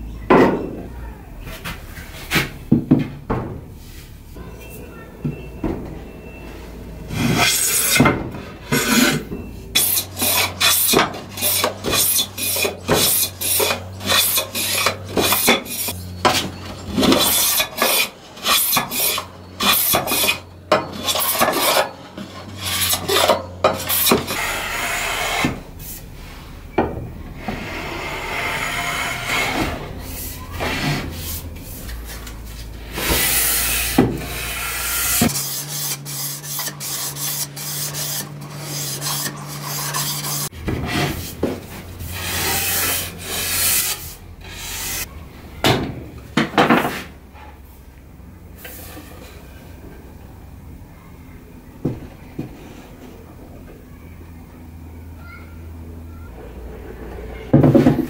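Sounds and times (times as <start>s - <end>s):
hand sanding wood: 8.7s - 16.0s, 27.6s - 45.1s.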